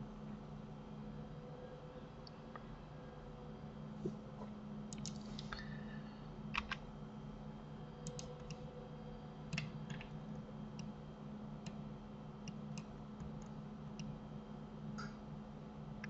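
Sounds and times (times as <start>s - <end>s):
steady low hum: 0.0s - 16.0s
keyboard and mouse clicking: 4.9s - 5.2s, 6.6s - 6.8s, 8.0s - 8.6s, 9.5s - 10.2s.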